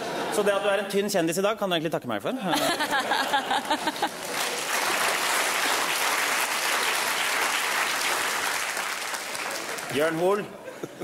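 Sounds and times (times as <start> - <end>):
audience applauding: 3.0 - 10.5.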